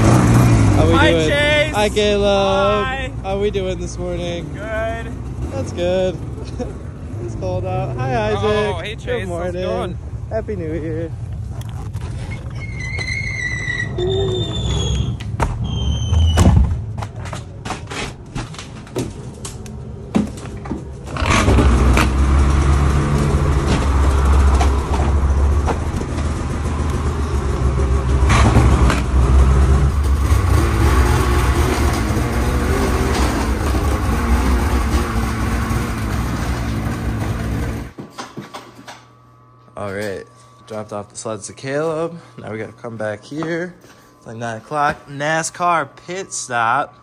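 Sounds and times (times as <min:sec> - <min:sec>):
snowmobile engine running: 0:21.2 - 0:37.9.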